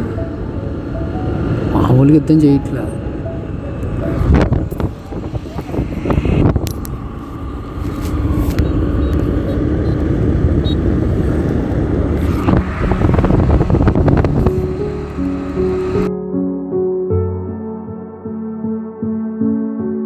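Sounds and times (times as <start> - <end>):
scooter engine and road noise: 0.0 - 16.1
wind buffeting microphone: 3.3 - 16.1.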